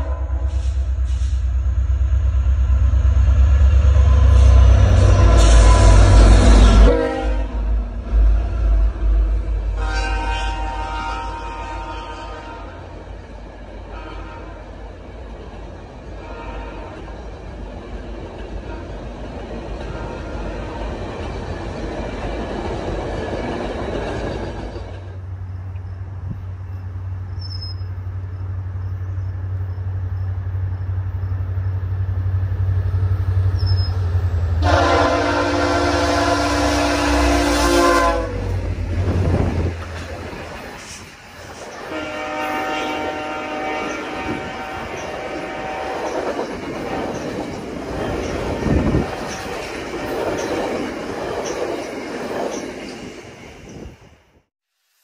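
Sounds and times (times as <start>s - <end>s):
locomotive air horn chord: 0.0s - 1.3s, 4.0s - 7.7s, 9.7s - 12.8s, 13.9s - 14.6s, 16.2s - 16.9s, 34.6s - 38.6s, 41.9s - 46.2s
diesel locomotive engine rumble: 0.0s - 54.5s
train wheels clattering on rails: 16.8s - 25.9s, 38.4s - 43.0s, 43.8s - 53.9s
wheels clicking over rail joints: 46.0s - 53.0s.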